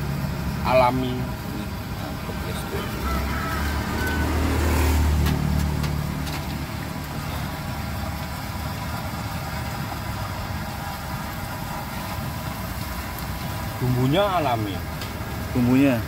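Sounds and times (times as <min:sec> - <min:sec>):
food deep-frying in oil: 0:00.0 - 0:16.0
low engine rumble: 0:00.0 - 0:16.0.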